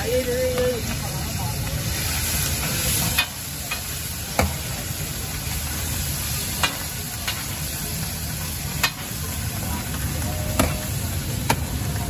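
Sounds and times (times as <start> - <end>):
fish sizzling on a griddle: 0.0 - 12.0
metal ladle clinking on griddle: 8.7 - 9.1.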